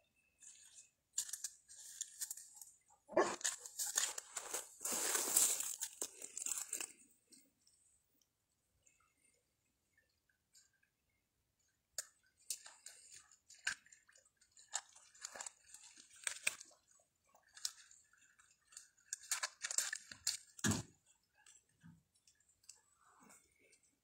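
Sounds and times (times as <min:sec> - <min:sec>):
footsteps crunching through dry leaves: 0:03.6 - 0:06.9.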